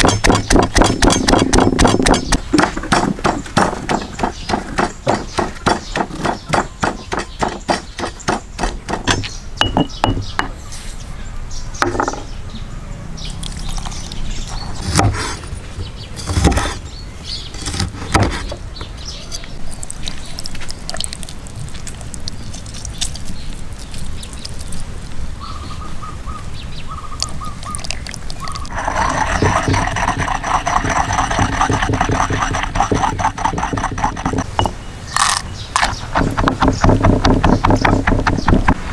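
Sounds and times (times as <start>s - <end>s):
mashing wet paste: 0.0s - 8.4s, 19.6s - 24.9s, 27.2s - 34.5s
stone pestle pounding in mortar: 0.0s - 10.6s, 28.7s - 34.8s, 35.8s - 38.8s.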